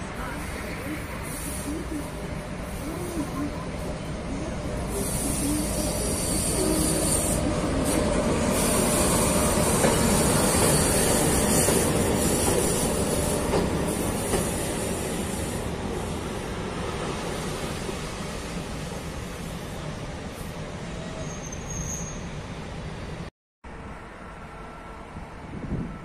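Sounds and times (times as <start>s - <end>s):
train wheels rumbling on rails: 0.0s - 21.8s.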